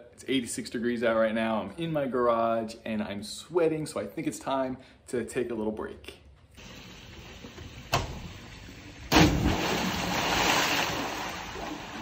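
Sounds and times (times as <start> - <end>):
person splashing into pool: 9.1 - 12.0
water churning and slapping: 9.1 - 12.0.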